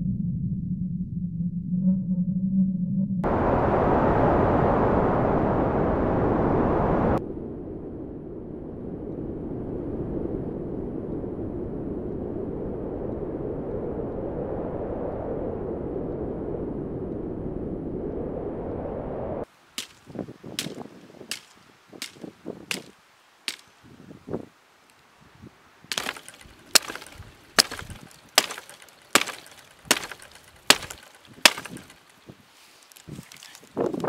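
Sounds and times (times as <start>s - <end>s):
wind rumbling on microphone: 3.2s - 34.0s
axe chopping dry branches: 19.8s - 22.9s, 23.5s - 23.7s, 25.9s - 32.2s.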